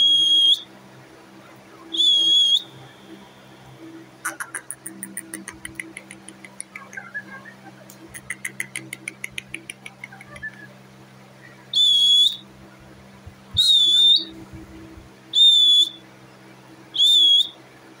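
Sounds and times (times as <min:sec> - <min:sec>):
parakeet whistling: 0:00.0 - 0:00.7, 0:01.8 - 0:10.7, 0:11.4 - 0:12.5, 0:13.5 - 0:14.4, 0:15.3 - 0:16.0, 0:16.9 - 0:17.6.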